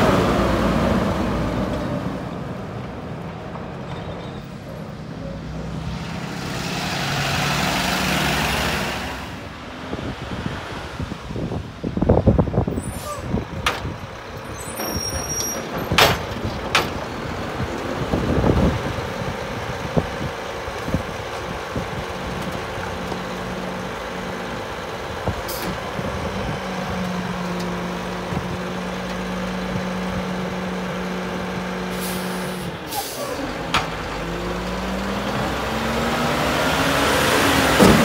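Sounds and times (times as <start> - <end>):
garbage truck engine: 0.0 - 10.6, 11.9 - 38.0
air brake hisses: 32.0 - 33.4.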